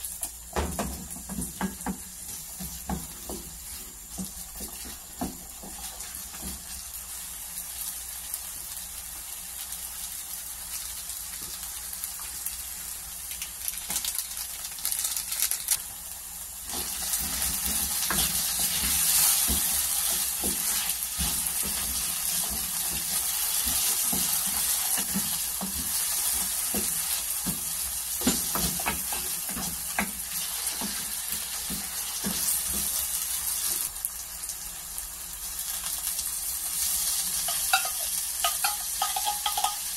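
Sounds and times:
potatoes sizzling in hot oil: 0.0 - 39.9.

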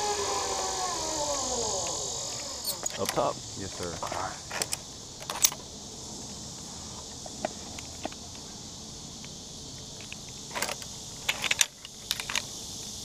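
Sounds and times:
zip line trolley whining: 0.0 - 5.6.

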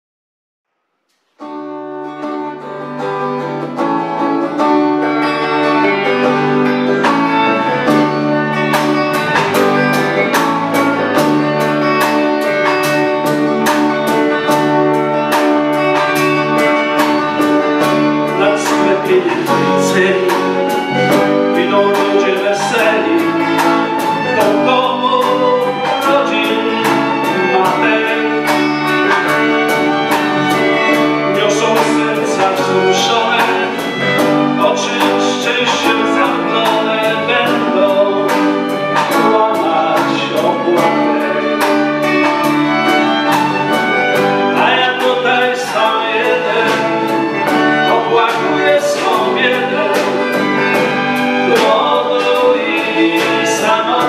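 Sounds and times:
small band playing live: 1.2 - 54.0
drum kit steady beat: 5.7 - 54.0.

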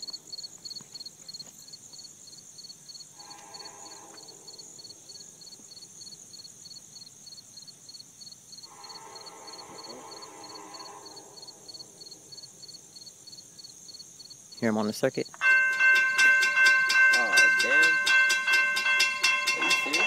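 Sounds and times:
insects chirping: 0.0 - 20.0
distant locomotive air horn: 3.1 - 5.3, 8.6 - 12.5, 15.4 - 20.0.

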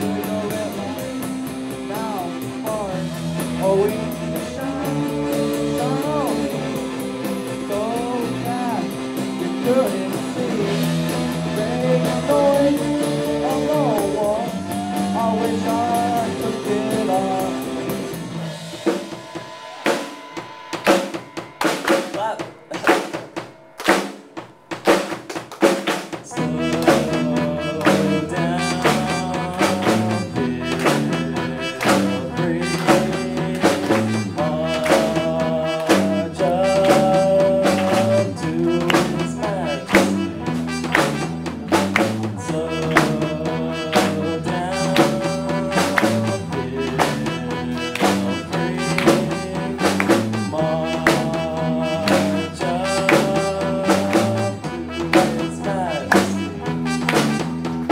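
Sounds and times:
live rock band playing: 0.0 - 57.9
drum hits: 16.7 - 57.9.

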